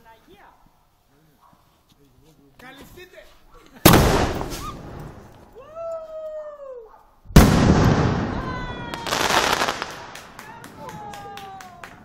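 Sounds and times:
firework bang: 0:03.8 - 0:05.3, 0:07.3 - 0:10.2
firework crackling: 0:07.4 - 0:12.0.

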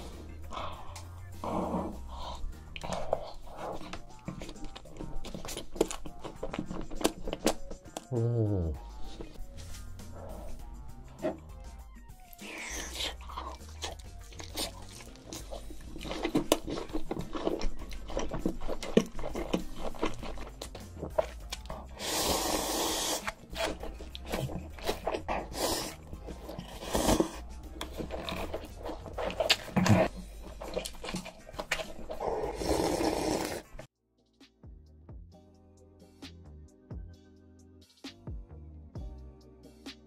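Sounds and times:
slurping noodles: 0:00.0 - 0:07.6, 0:12.3 - 0:33.9
wet chewing: 0:00.0 - 0:33.9.

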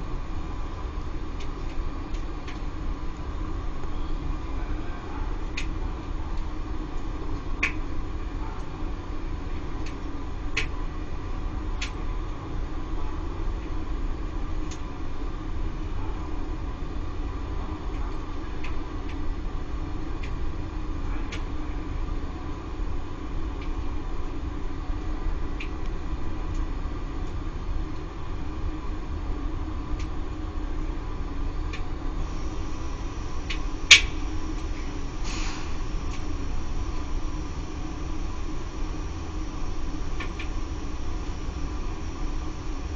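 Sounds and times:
circulation pump humming: 0:17.0 - 0:42.9
brief hiss: 0:32.3 - 0:42.9.

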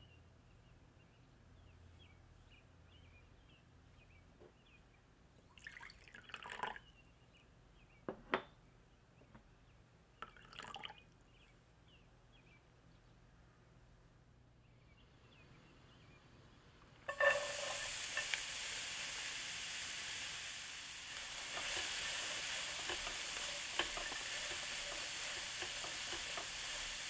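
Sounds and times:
faint bird chirps: 0:00.0 - 0:05.6, 0:14.6 - 0:16.8
water pouring into glass bowl: 0:05.6 - 0:06.8, 0:10.2 - 0:11.0.

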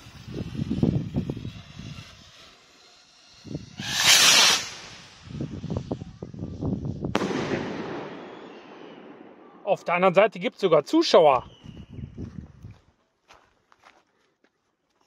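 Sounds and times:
rocket launching whoosh: 0:00.0 - 0:09.6
firework bang with echo: 0:03.8 - 0:05.0, 0:07.1 - 0:09.6.

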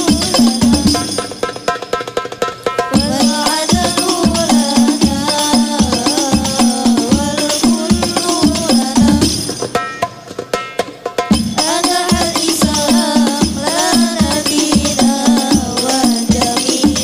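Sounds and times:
women singing in unison: 0:00.0 - 0:01.2, 0:02.9 - 0:09.6, 0:11.6 - 0:17.0
frame drums: 0:00.0 - 0:17.0.

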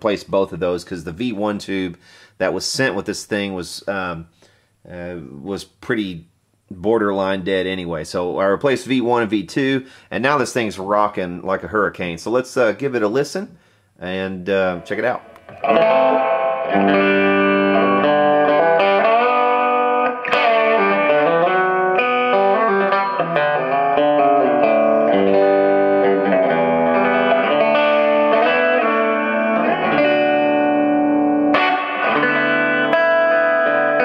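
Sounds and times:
electric guitar chords and notes: 0:14.6 - 0:34.0.

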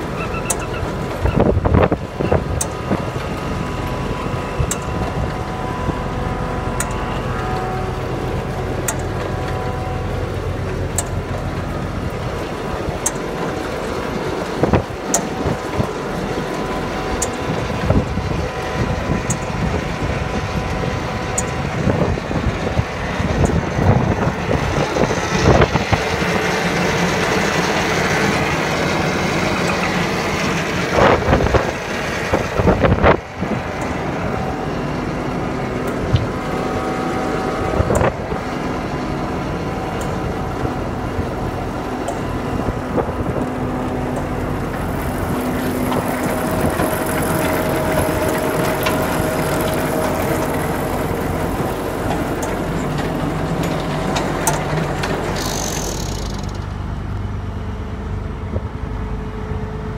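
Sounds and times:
engine running: 0:00.0 - 0:59.9
wind on microphone: 0:01.2 - 0:03.1, 0:17.5 - 0:26.2, 0:31.0 - 0:34.5.

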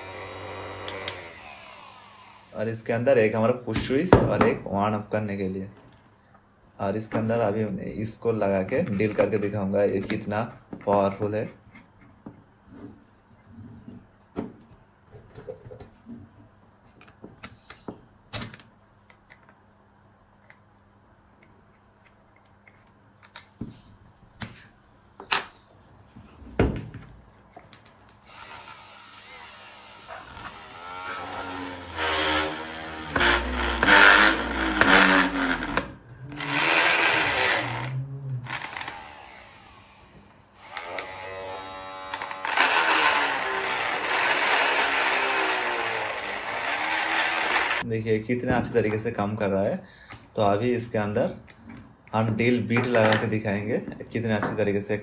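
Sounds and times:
drill bit cutting plastic: 0:00.0 - 0:02.6, 0:28.3 - 0:47.8.

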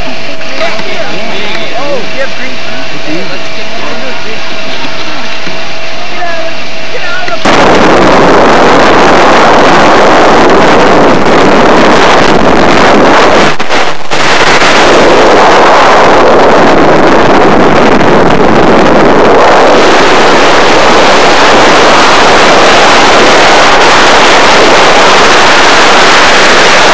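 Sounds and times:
freefall wind rushing over microphone: 0:00.0 - 0:26.9.

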